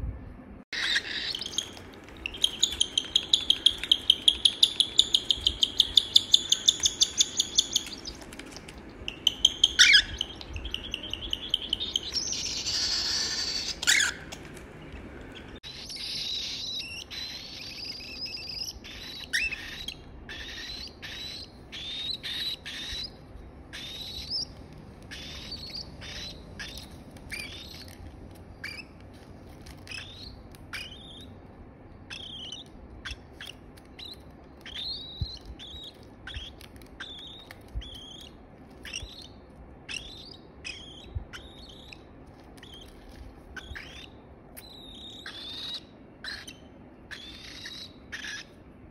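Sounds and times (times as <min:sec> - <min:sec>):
chicks food-begging calls: 0:00.8 - 0:08.5, 0:09.1 - 0:14.4.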